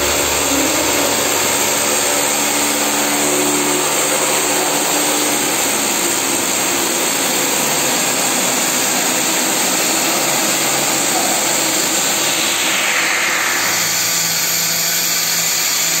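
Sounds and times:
machine whooshing: 0:09.9 - 0:14.7.

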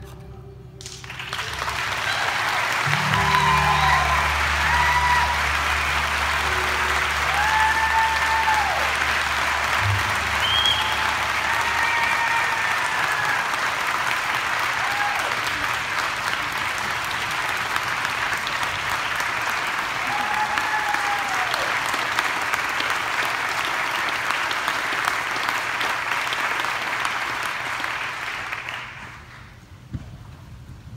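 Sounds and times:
audience applauding: 0:00.8 - 0:29.6
whoops and cheers: 0:01.8 - 0:13.8, 0:14.6 - 0:15.7, 0:20.0 - 0:21.9.

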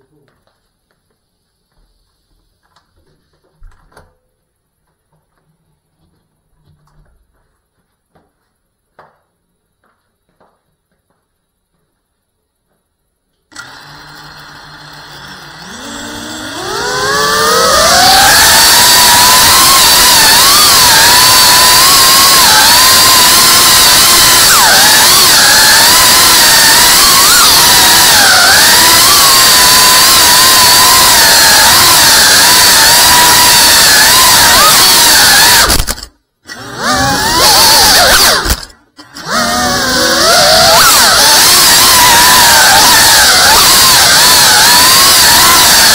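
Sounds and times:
drone motors whining: 0:13.5 - 0:45.9.

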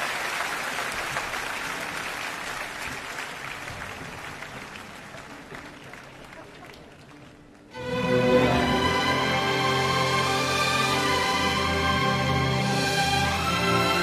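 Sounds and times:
large audience applauding: 0:00.0 - 0:08.0.

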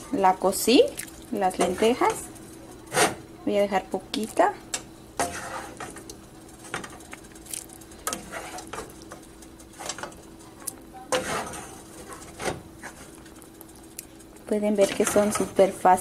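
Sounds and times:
spoon scraping and knocking pan: 0:01.5 - 0:02.2, 0:04.8 - 0:07.0, 0:08.0 - 0:09.2, 0:11.1 - 0:13.2, 0:14.8 - 0:15.6.

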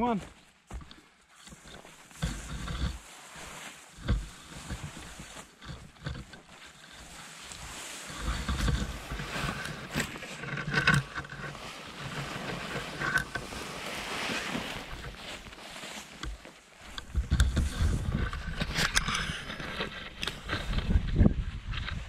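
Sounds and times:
footsteps through ferns: 0:00.0 - 0:18.8
ferns swishing and rustling: 0:00.2 - 0:22.0.

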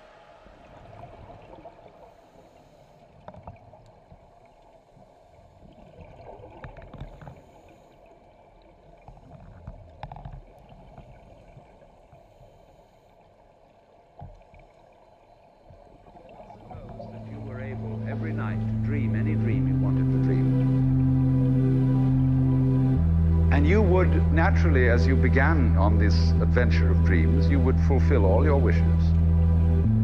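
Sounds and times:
low underwater rumble: 0:00.0 - 0:30.0
regulator bubbles gurgling: 0:00.1 - 0:12.6, 0:15.7 - 0:18.1.

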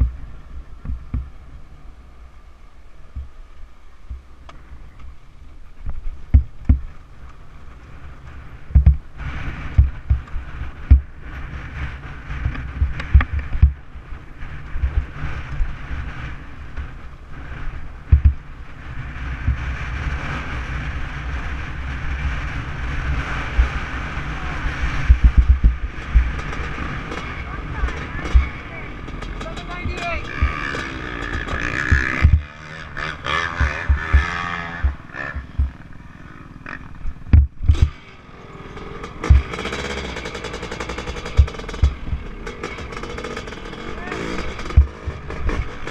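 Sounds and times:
dirt bike engine: 0:00.0 - 0:45.9
wind rumble on microphone: 0:03.0 - 0:38.0
dull thumps from bumps: 0:06.3 - 0:06.9, 0:08.7 - 0:09.0, 0:09.8 - 0:11.1, 0:12.4 - 0:13.8, 0:18.1 - 0:18.4, 0:29.4 - 0:32.6, 0:33.4 - 0:35.8, 0:37.3 - 0:37.9, 0:39.2 - 0:39.6, 0:44.5 - 0:45.7.

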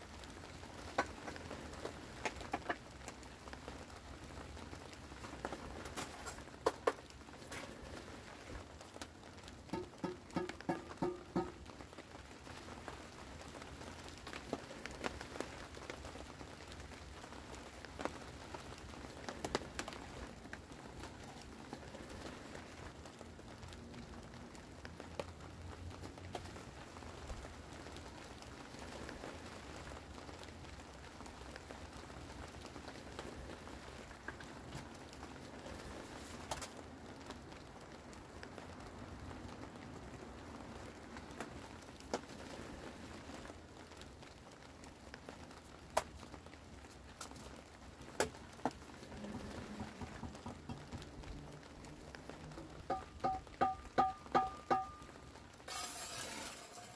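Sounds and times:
rain pattering on a tarp: 0:00.0 - 0:56.9
concrete blocks knocking: 0:09.7 - 0:11.6, 0:52.8 - 0:55.0, 0:55.7 - 0:56.9.

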